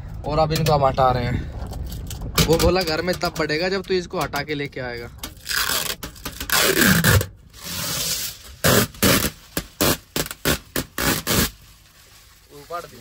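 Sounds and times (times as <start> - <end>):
film peeled off window glass: 5.3 - 13.0.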